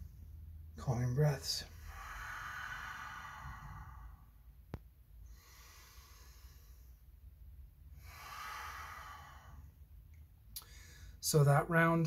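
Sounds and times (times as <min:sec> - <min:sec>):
slow breathing through nose: 0:01.7 - 0:04.5, 0:05.2 - 0:07.3, 0:07.9 - 0:09.9.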